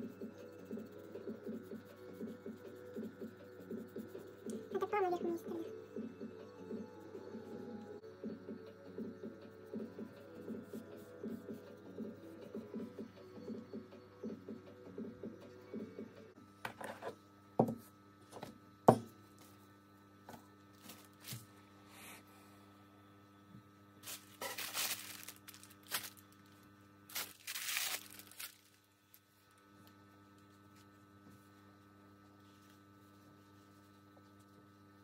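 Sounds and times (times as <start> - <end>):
electrical hum: 0.0 - 35.0
rustling and rubbing: 24.0 - 26.2, 27.1 - 28.8.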